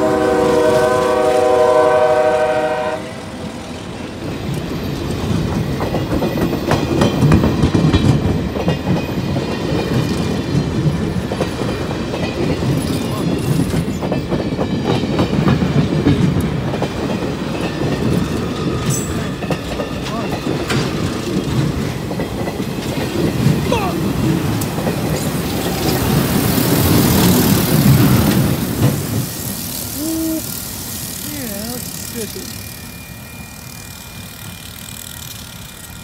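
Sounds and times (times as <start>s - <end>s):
locomotive air horn: 0.0s - 3.4s
train wheels clacking on rails: 3.4s - 36.0s.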